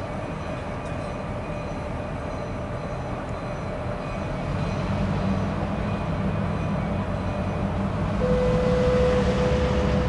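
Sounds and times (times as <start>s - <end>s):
faint steady tones: 0.0s - 10.0s
freight train rumbling: 0.0s - 10.0s.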